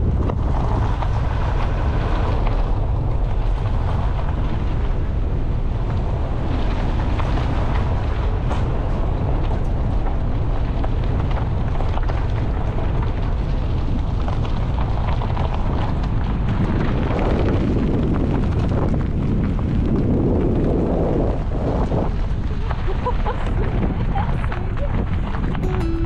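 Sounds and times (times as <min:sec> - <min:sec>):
wind buffeting microphone: 0:00.0 - 0:26.0.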